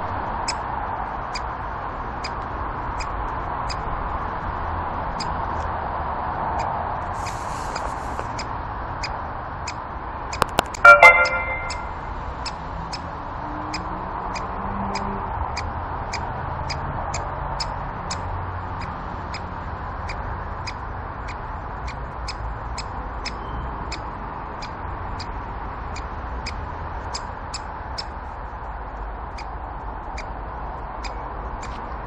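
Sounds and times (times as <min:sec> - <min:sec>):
sharp ticks: 0:06.6 - 0:13.1, 0:13.7 - 0:25.3, 0:31.0 - 0:31.8.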